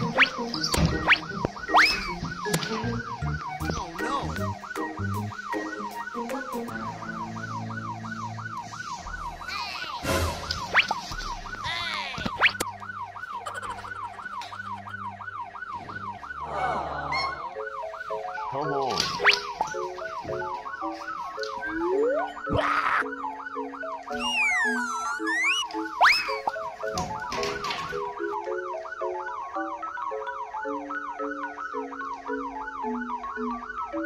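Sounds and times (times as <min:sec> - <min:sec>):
swooping sound effects: 0:00.0 - 0:02.6, 0:06.4 - 0:12.7, 0:24.1 - 0:26.5
siren-like wailing tone: 0:00.0 - 0:26.8.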